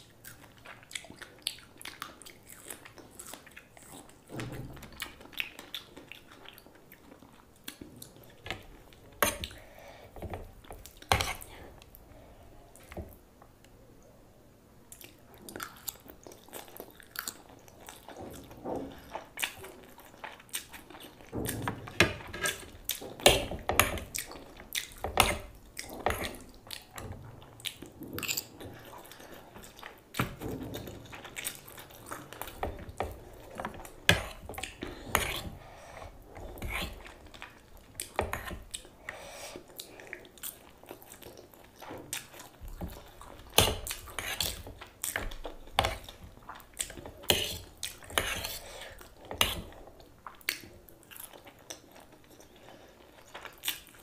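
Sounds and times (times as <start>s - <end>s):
wet chewing and slurping: 15.0s - 54.0s.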